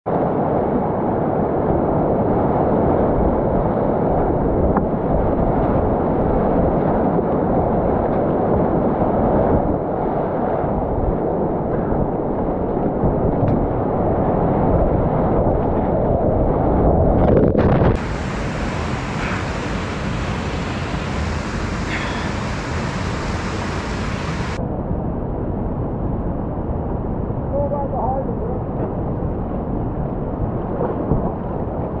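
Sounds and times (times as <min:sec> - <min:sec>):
whitewater rapids rushing: 0:18.0 - 0:24.6.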